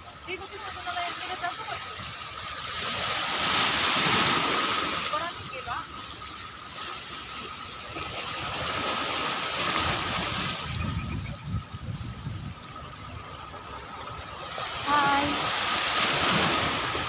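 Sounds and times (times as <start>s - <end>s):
sea water lapping at seawall: 0.0s - 17.0s
wind: 0.0s - 17.0s
wind buffeting microphone: 8.0s - 17.0s.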